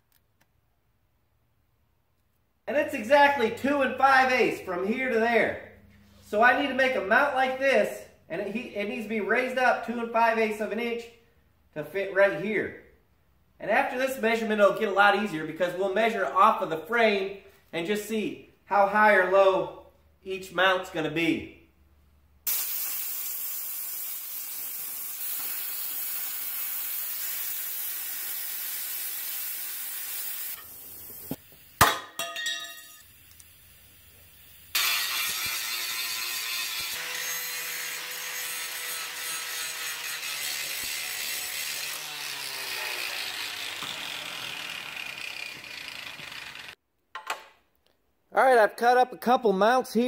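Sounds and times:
sharp metallic clank and ring: 0:31.9 - 0:33.1
cutoff tool grinding steel: 0:34.7 - 0:46.8
grinder on steel: 0:34.7 - 0:46.8.

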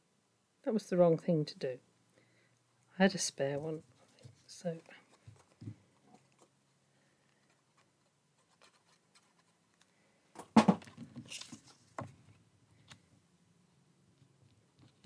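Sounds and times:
card rustling and sliding: 0:10.4 - 0:12.4.

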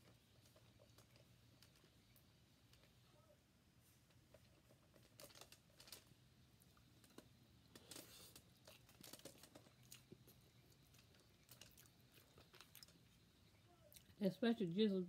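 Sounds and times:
person chewing: 0:07.7 - 0:13.3.

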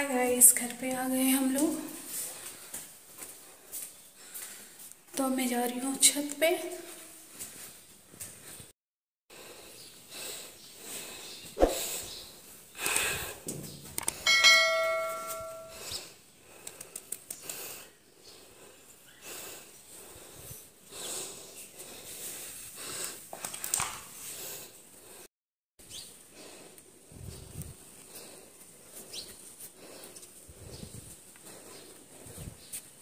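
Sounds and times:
footsteps on tiled roof: 0:01.5 - 0:05.2, 0:06.8 - 0:08.7
ringing tone: 0:14.3 - 0:15.8.

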